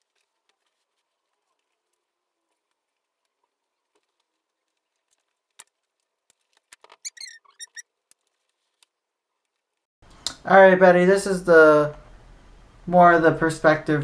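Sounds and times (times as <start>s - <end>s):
vinyl squeaking and rubbing: 6.8s - 7.9s.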